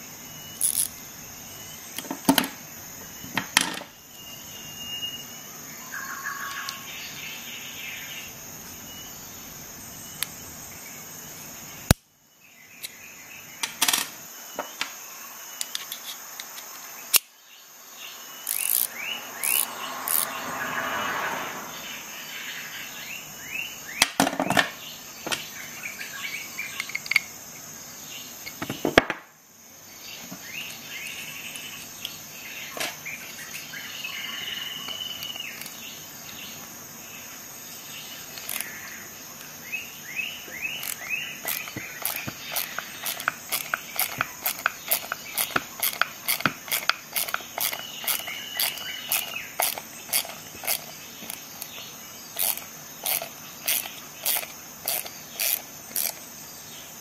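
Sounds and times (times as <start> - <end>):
insects chirring: 0.0 - 57.0
sharp clicks: 40.8 - 56.2.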